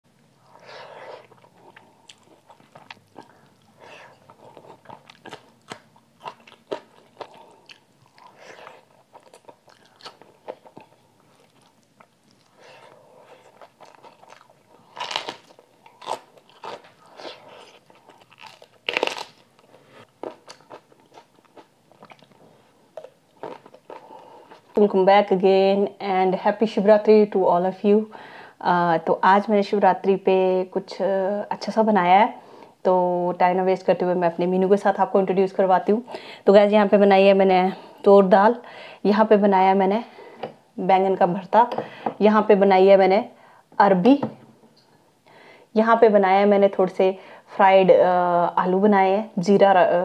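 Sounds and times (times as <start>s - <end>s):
chewing and crunching food: 1.1s - 24.8s.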